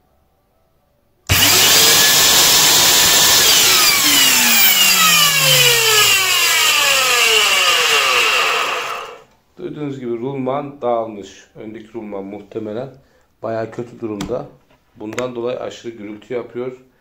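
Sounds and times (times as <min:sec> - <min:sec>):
vacuum cleaner motor whining: 0:01.3 - 0:09.2.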